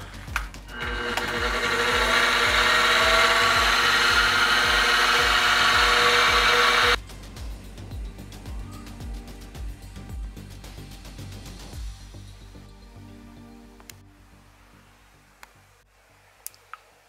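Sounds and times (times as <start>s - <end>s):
background music with steady beat: 0.0s - 15.9s
milling machine motor whine: 0.7s - 7.0s.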